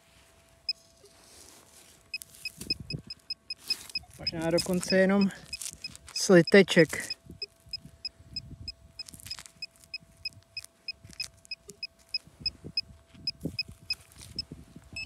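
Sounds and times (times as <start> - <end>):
soil scuffing: 0.0 - 2.8, 3.6 - 6.3
faint steady hum: 0.0 - 15.0
metal detector beeping: 2.0 - 15.0.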